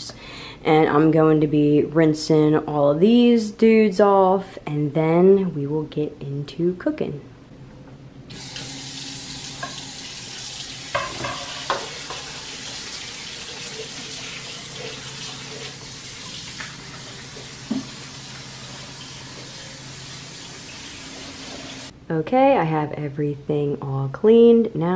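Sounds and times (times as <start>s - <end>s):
faucet running: 8.3s - 21.9s.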